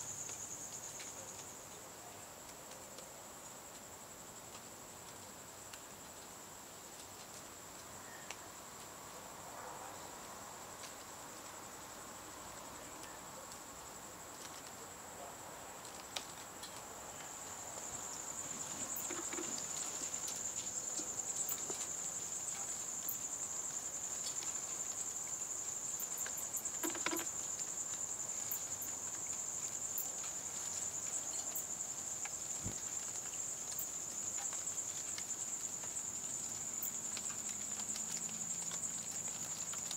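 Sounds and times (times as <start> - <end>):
faint ticks: 0.0 - 1.8, 15.8 - 39.9
insect trilling: 17.3 - 22.4, 25.2 - 30.1.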